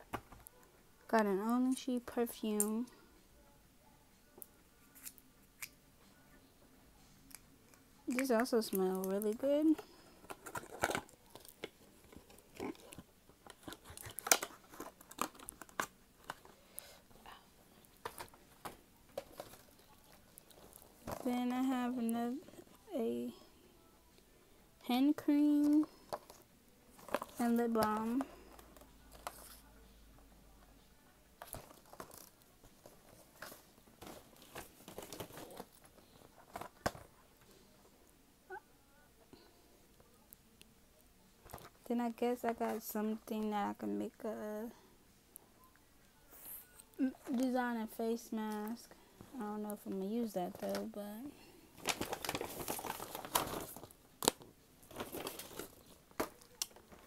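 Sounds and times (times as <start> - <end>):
packaging crinkling: 10.2 - 16.9, 17.9 - 21.3, 51.8 - 57.0.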